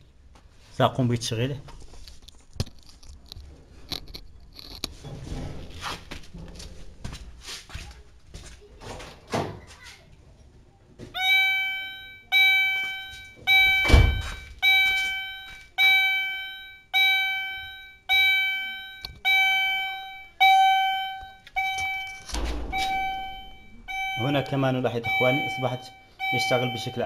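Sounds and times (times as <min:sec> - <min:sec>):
car reversing alarm beeping: 0:11.2 - 0:27.0
loud thump: 0:13.8 - 0:14.4, 0:22.3 - 0:23.7
knocks: 0:21.8 - 0:23.2.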